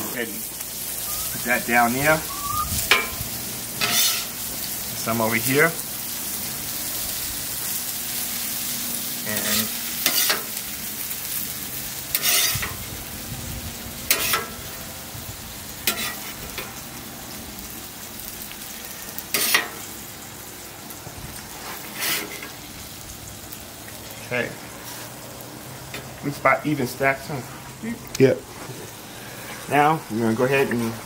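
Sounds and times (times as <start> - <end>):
food sizzling on a griddle: 0.0 - 31.0
metal spatula scraping griddle: 3.8 - 4.4, 9.3 - 10.6, 12.1 - 12.8, 14.1 - 14.6, 15.8 - 16.7, 19.3 - 19.8, 21.5 - 22.6.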